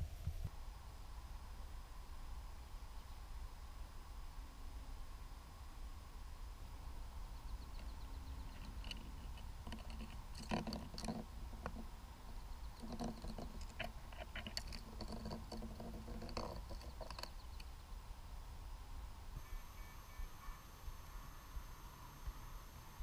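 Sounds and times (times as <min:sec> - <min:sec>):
low steady rumble: 0:00.0 - 0:23.0
net clicks knocks and scrapes: 0:08.5 - 0:11.8, 0:12.8 - 0:17.7.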